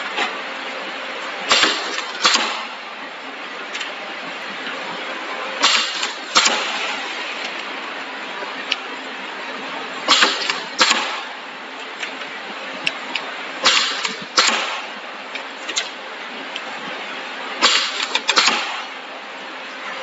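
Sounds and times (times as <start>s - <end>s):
pneumatic pressing head clacking: 1.5s - 2.7s, 5.6s - 6.9s, 10.1s - 11.2s, 13.6s - 14.8s, 17.6s - 18.8s.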